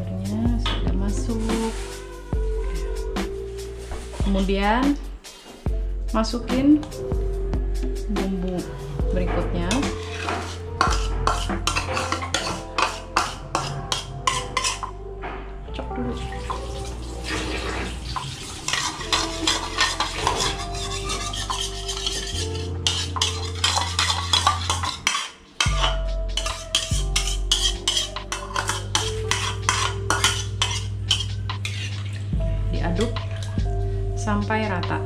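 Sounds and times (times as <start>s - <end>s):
stirring in a wok: 9.6s - 14.9s, 16.5s - 32.3s
spatula scraping plastic bowl: 9.7s - 14.9s, 17.5s - 32.3s.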